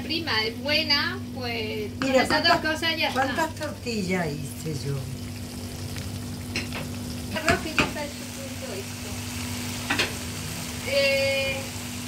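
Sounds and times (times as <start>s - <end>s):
chicken sizzling in a pan: 0.9s - 12.0s
utensil knocking against pan: 7.4s - 8.0s.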